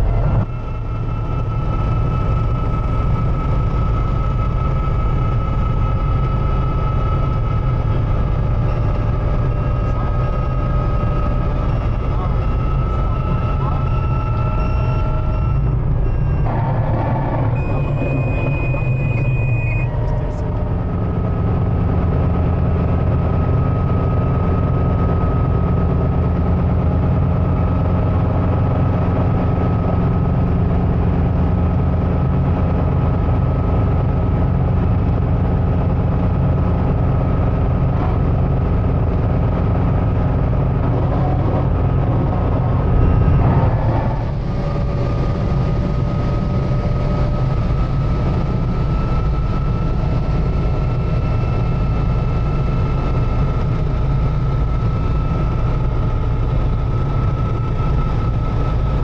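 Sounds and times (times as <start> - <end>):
helicopter engine and rotors: 0.0 - 59.0
high steady beep: 8.6 - 20.8.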